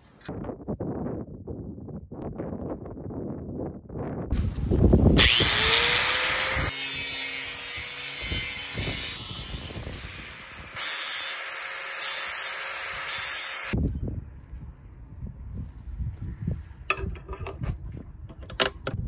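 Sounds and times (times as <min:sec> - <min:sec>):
angle grinder cutting: 0:05.2 - 0:13.8.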